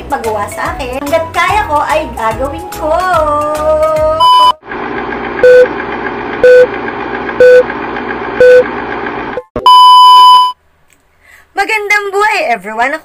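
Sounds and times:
long high beep: 4.2s - 4.6s, 5.4s - 5.7s, 6.4s - 6.7s, 7.4s - 7.7s, 8.4s - 8.7s, 9.6s - 10.6s
short beeps: 4.2s - 4.6s, 6.4s - 6.7s, 7.4s - 7.6s, 8.4s - 8.6s, 9.5s - 10.6s.

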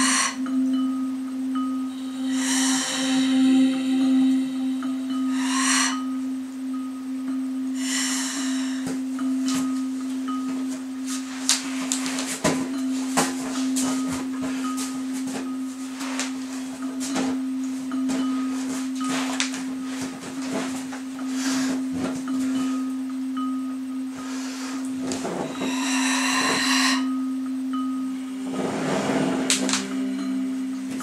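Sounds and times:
chime-like tones: 0.0s - 31.0s
low droning tone: 0.0s - 31.0s
person breathing: 2.0s - 6.1s, 7.8s - 9.0s, 19.1s - 21.9s, 24.2s - 27.2s
exercise ball rustling and knocking: 8.8s - 22.9s.

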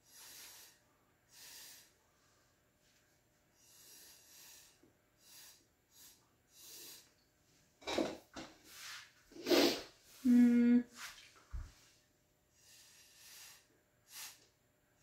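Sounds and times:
person blowing puffs of breath: 0.0s - 2.0s, 3.6s - 7.1s, 9.4s - 10.3s, 12.6s - 14.4s.

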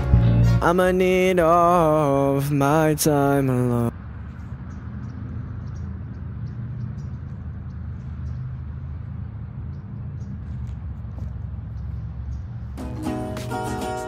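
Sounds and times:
distant city traffic rumble: 0.0s - 14.0s
faint ticks: 11.7s - 12.8s.

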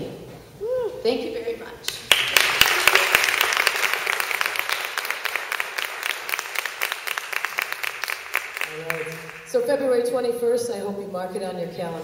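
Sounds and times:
audience applauding: 1.9s - 9.6s.

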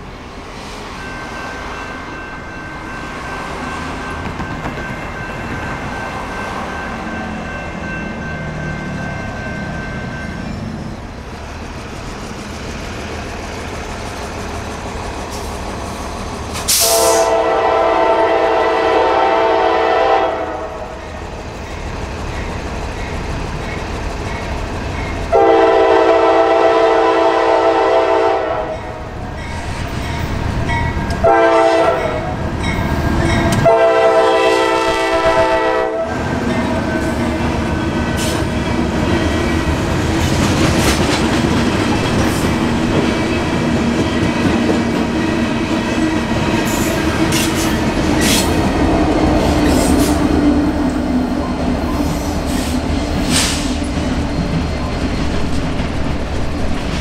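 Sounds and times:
locomotive engine and rail rumble: 0.0s - 57.0s
train air horn blasts: 16.7s - 20.9s, 25.3s - 29.0s, 31.2s - 32.4s, 33.6s - 36.2s.

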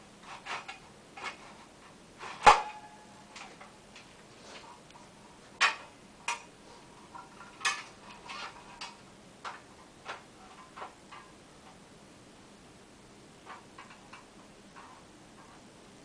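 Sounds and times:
metal sections clicking and knocking: 5.6s - 6.5s, 7.1s - 11.8s, 13.4s - 15.7s.

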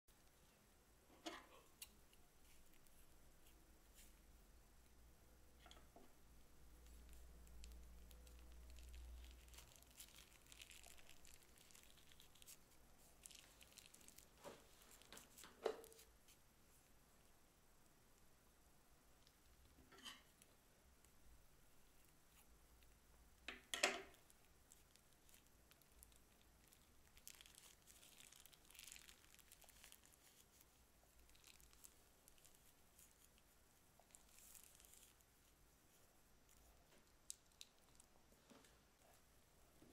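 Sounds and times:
sticky slime squelches: 6.4s - 16.5s, 24.0s - 39.4s
plastic bag crinkling: 6.9s - 16.1s, 24.0s - 35.2s.

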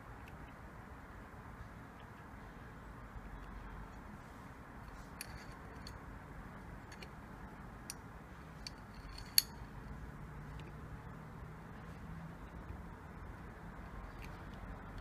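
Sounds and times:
small metallic clicks and taps: 4.8s - 6.0s, 6.8s - 7.2s, 8.6s - 10.8s, 11.8s - 15.0s.

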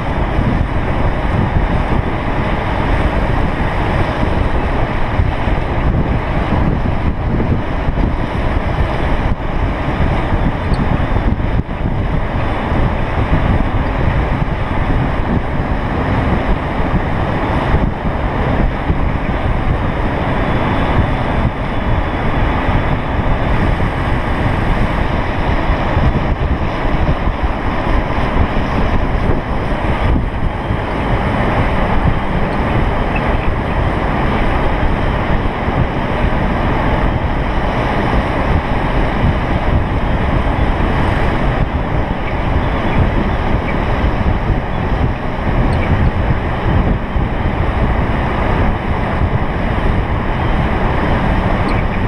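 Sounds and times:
wind buffeting microphone: 0.0s - 52.0s.

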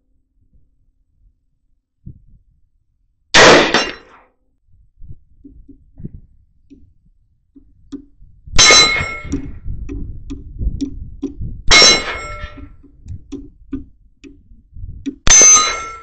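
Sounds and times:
rifle bullets striking steel plates: 3.4s - 4.2s, 8.6s - 9.4s, 11.7s - 12.8s, 15.2s - 16.0s.

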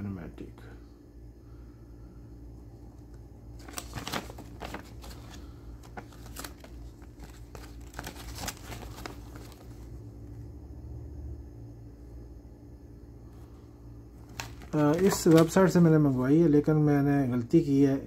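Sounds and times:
steady low hum: 0.0s - 18.0s
paper leaflet crinkling: 3.5s - 10.0s, 14.2s - 16.3s.

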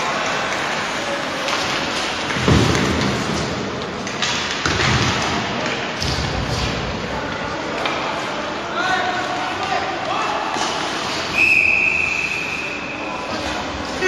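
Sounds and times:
hockey sticks and puck clicking: 0.0s - 8.4s, 9.1s - 11.4s.

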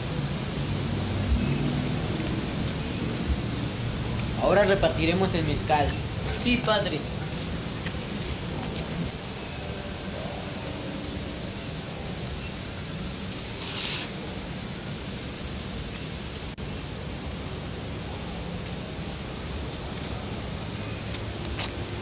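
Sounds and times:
steady hiss: 0.0s - 22.0s
short rustle: 13.3s - 14.2s.

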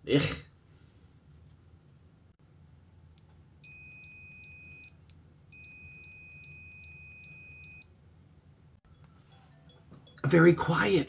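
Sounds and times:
multimeter beeper tone: 3.6s - 4.9s, 5.5s - 7.9s.

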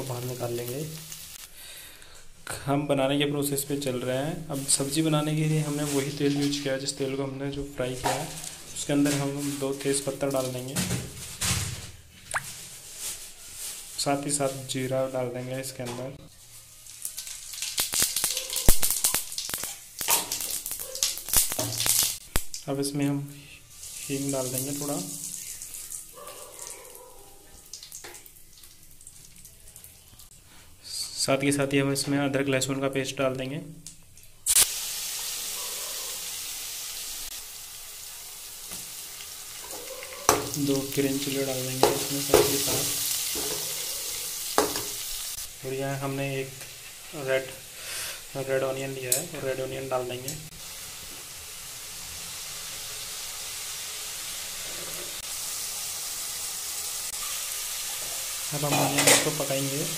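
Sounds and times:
seeds sizzling in hot oil: 0.0s - 1.8s, 4.4s - 7.0s, 16.3s - 22.6s, 23.4s - 26.2s, 34.4s - 59.9s
faint scattered crackle: 16.3s - 22.7s.

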